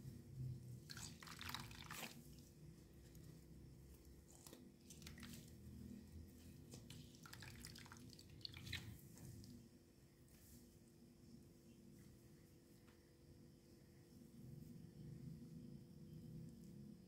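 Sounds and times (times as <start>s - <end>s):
wet sponge squelching: 0.8s - 3.2s, 4.3s - 9.6s.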